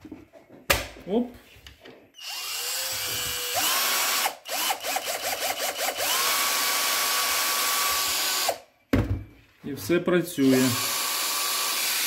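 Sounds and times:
cordless drill spinning: 0:02.2 - 0:08.6, 0:10.4 - 0:12.0.

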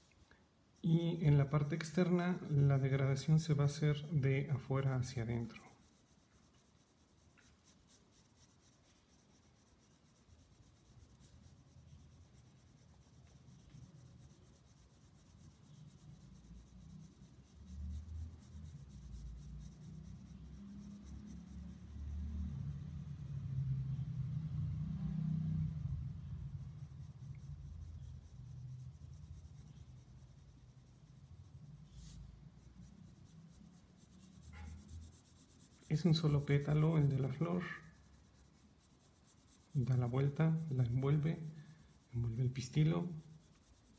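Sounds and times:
pencil scratching on paper: 0:00.8 - 0:43.9.

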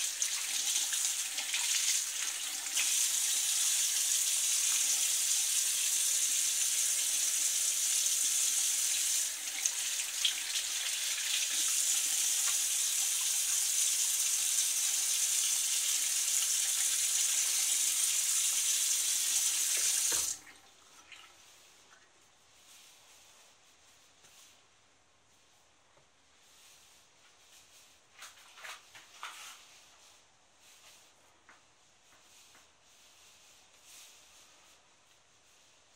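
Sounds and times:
hands rinsing mask: 0:00.0 - 0:05.7, 0:16.0 - 0:22.1
faucet running into sink: 0:07.4 - 0:21.2.

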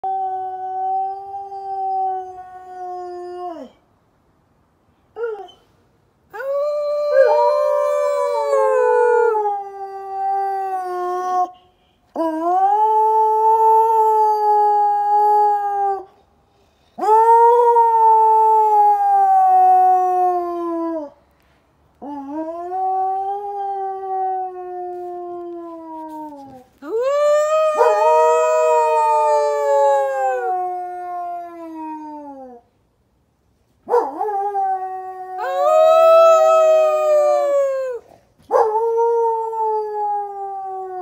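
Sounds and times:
dog howling: 0:06.4 - 0:09.5.

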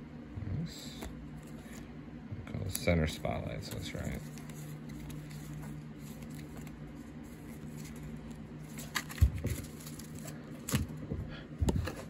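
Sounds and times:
faint steady hum: 0:00.0 - 0:12.0
card stack thumping: 0:08.7 - 0:12.0.

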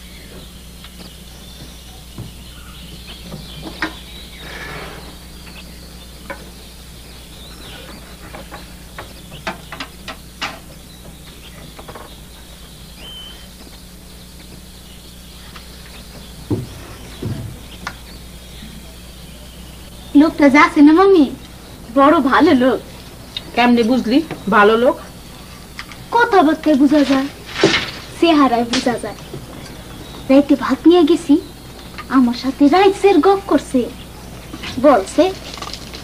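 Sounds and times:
low steady hum: 0:00.0 - 0:36.0
night insects chirring: 0:00.0 - 0:36.0
scattered clicks and knocks: 0:08.2 - 0:12.2
low thumps: 0:15.7 - 0:18.5.

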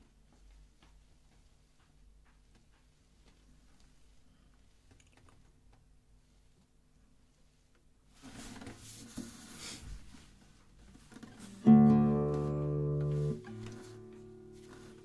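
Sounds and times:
classical guitar chord: 0:11.4 - 0:15.0
faint rustles: 0:12.4 - 0:15.0.

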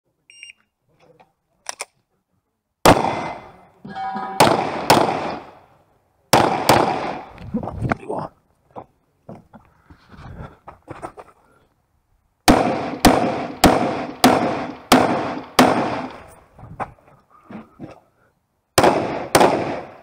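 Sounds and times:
pistol shots with echo: 0:02.8 - 0:03.5, 0:04.4 - 0:05.6, 0:06.3 - 0:07.3, 0:12.5 - 0:16.2, 0:18.8 - 0:20.0.

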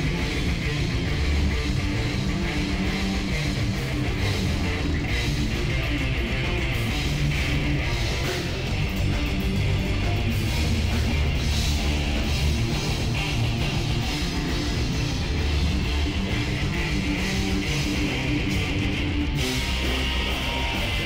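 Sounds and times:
bass guitar: 0:00.0 - 0:21.0
drums: 0:00.0 - 0:21.0
electric guitars: 0:00.0 - 0:21.0.

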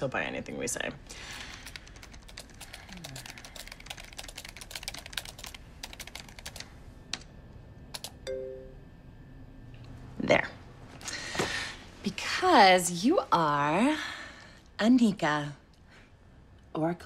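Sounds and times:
typing on laptop keyboard: 0:01.3 - 0:07.3, 0:07.9 - 0:08.2.

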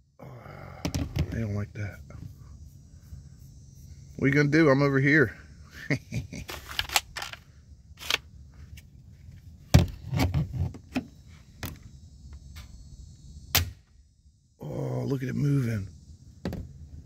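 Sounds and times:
salt gun clicks and knocks: 0:08.0 - 0:08.3.

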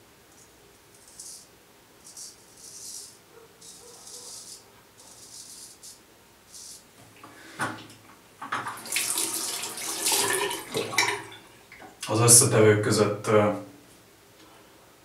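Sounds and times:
tap water splashing into sink: 0:08.4 - 0:11.4.

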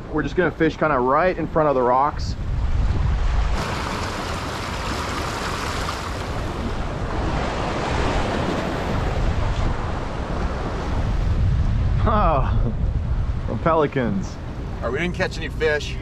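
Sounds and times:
wind buffeting microphone: 0:01.2 - 0:16.0
waves splashing against rocks: 0:03.6 - 0:09.4.

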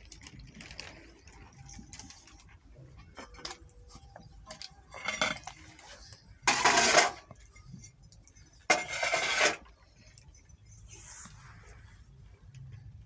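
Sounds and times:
steel dishes clinking and knocking: 0:04.4 - 0:09.7.

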